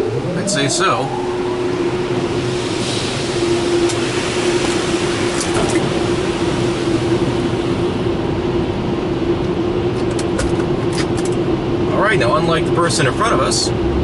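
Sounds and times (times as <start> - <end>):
steady hum: 0.0 - 14.0
water spray hissing on car: 2.4 - 8.0.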